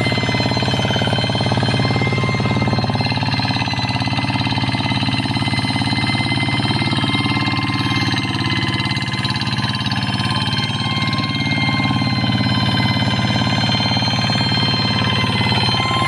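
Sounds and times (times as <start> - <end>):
diesel engine chugging: 0.0 - 16.0
high-pitched whine: 0.0 - 16.0.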